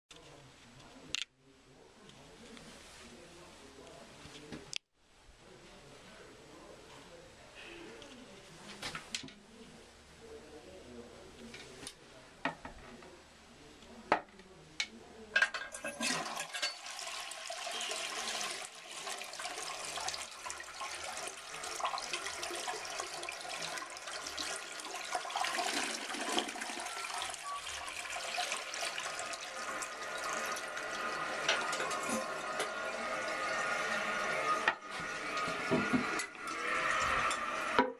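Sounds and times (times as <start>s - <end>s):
toilet water rushing and swirling: 15.7s - 37.9s.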